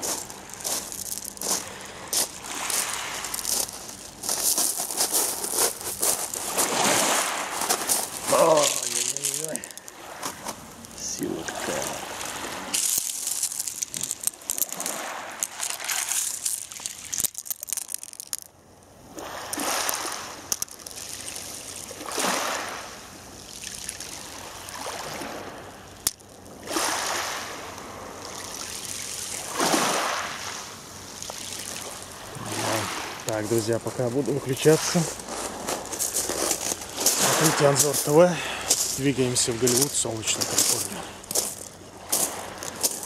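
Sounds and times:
waves washing over pebbles: 0.0 - 43.0.

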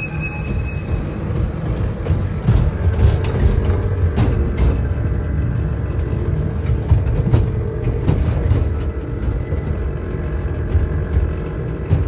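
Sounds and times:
ride-on train wheels rumbling: 0.0 - 12.0.

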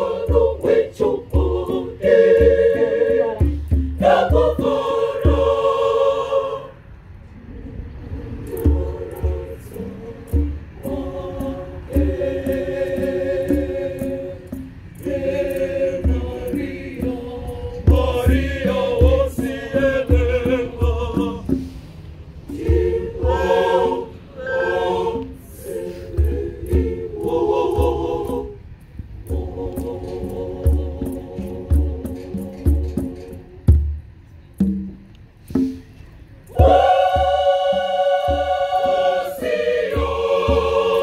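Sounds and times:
choir singing in harmony: 0.0 - 7.0, 7.6 - 33.9, 36.5 - 41.0.

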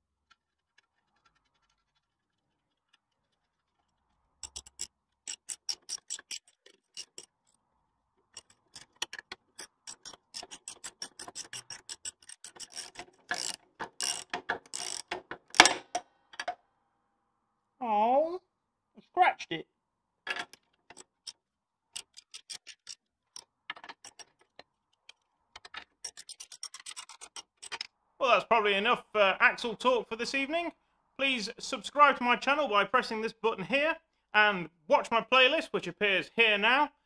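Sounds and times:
ratchet spanner clicking: 4.4 - 7.3, 8.3 - 15.8, 26.0 - 27.8.

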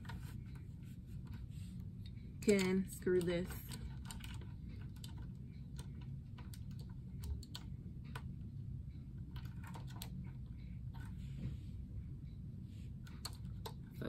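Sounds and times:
low steady hum: 0.0 - 14.0.

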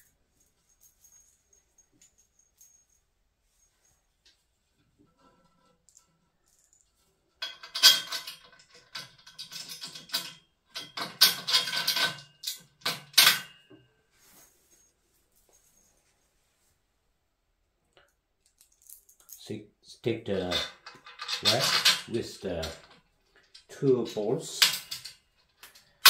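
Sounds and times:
metal bolt clicking and rattling: 5.2 - 13.7, 20.3 - 26.0.

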